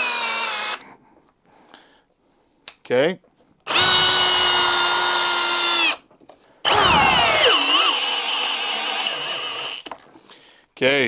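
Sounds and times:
cordless drill motor whine: 0.0 - 0.8, 3.7 - 6.0, 6.7 - 9.9.

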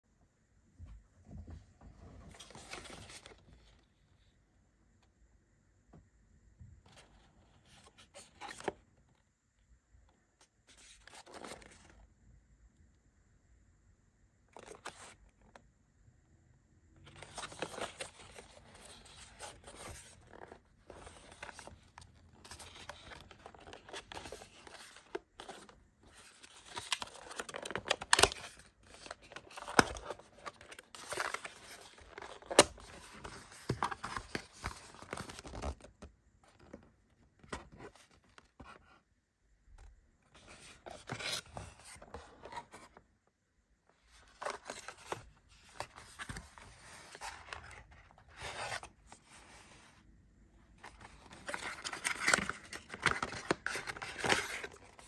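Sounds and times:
cardboard scraping and rustling: 17.2 - 36.0, 50.8 - 55.0.

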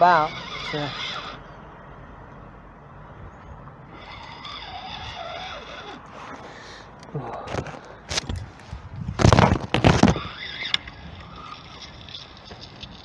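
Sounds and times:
road traffic passing: 0.0 - 13.0
wind on microphone: 7.5 - 13.0.

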